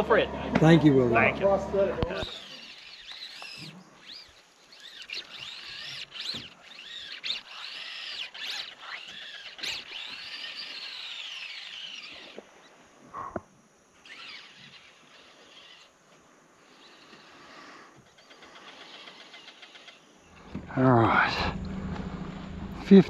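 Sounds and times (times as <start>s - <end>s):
high-pitched squealing animal calls: 2.2s - 12.4s.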